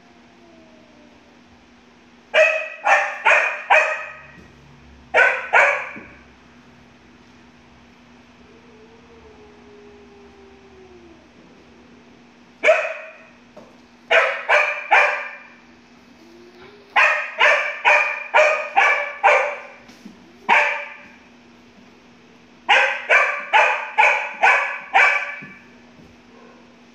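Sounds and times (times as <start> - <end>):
faint steady hum: 0.0 - 26.9
dog barking: 2.4 - 4.4, 5.1 - 6.2, 12.6 - 13.3, 14.1 - 15.6, 17.0 - 19.8, 20.5 - 21.2, 22.7 - 25.6, 26.3 - 26.7.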